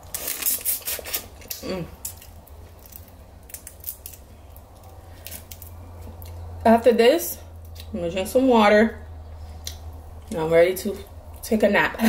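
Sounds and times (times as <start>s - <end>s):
shells cracking and clicking: 1.4s - 5.8s.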